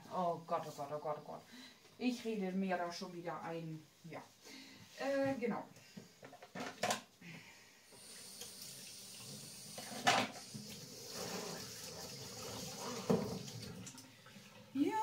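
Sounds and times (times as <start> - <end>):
pot hissing: 7.9 - 13.6.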